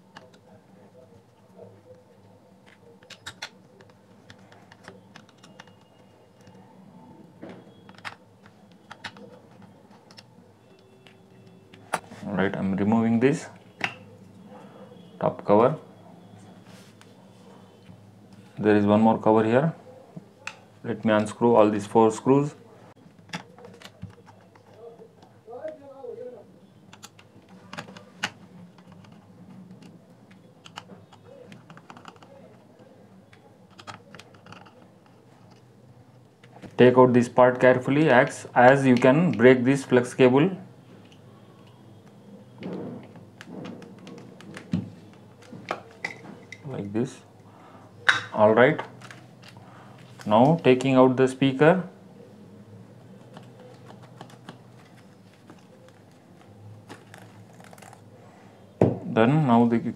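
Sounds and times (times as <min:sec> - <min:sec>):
plastic parts clicking: 0:02.6 - 0:06.6, 0:07.8 - 0:10.3, 0:26.9 - 0:32.6, 0:33.3 - 0:36.7.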